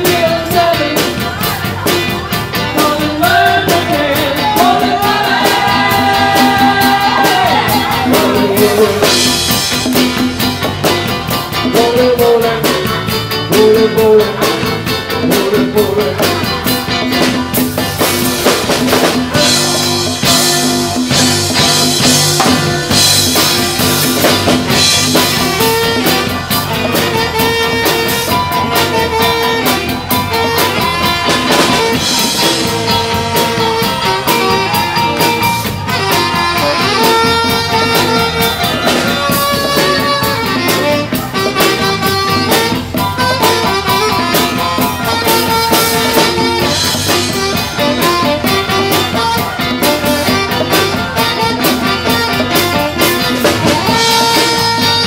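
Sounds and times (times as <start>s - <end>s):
person singing: 0.0s - 10.4s, 11.3s - 55.0s
drum kit beat: 0.0s - 55.0s
electric guitar: 0.0s - 55.0s
live band playing: 0.0s - 55.0s.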